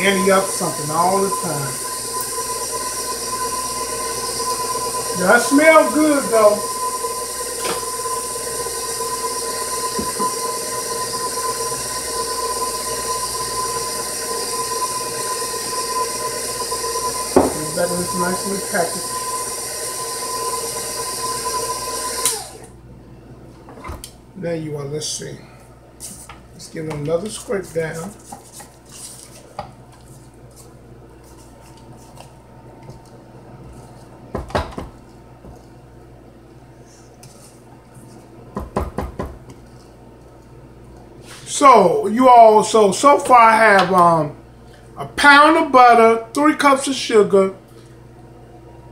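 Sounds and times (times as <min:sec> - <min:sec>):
stand mixer motor whining: 0:00.0 - 0:22.7.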